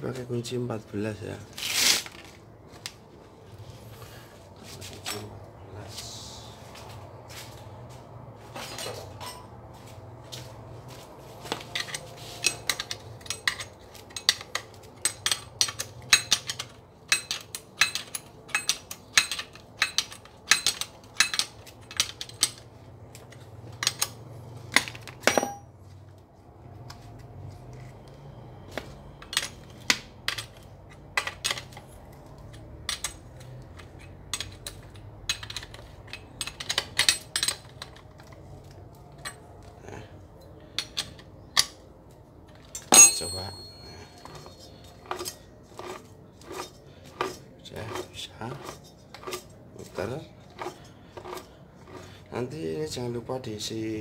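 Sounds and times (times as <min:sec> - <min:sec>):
wrench clicking on bolts: 0:11.8 - 0:22.6.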